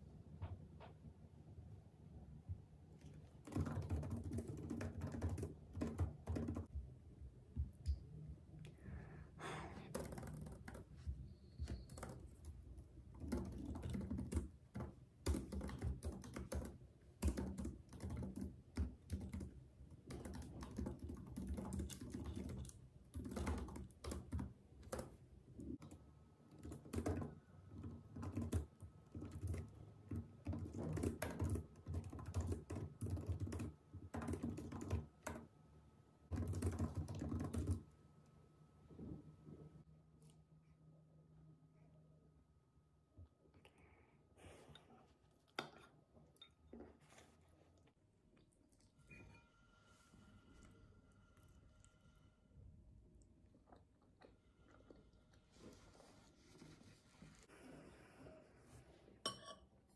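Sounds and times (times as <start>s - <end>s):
typing on laptop keyboard: 3.3s - 6.7s, 9.9s - 35.5s, 36.3s - 37.9s.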